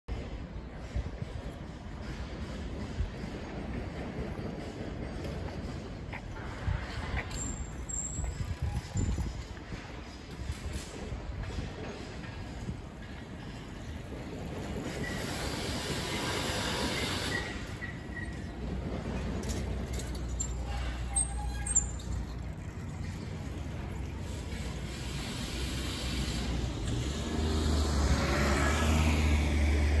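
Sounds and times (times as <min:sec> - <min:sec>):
street traffic noise: 0:00.1 - 0:30.0
vehicle engine rumble: 0:00.1 - 0:30.0
brief high squeaks: 0:14.8 - 0:18.7, 0:20.0 - 0:22.6.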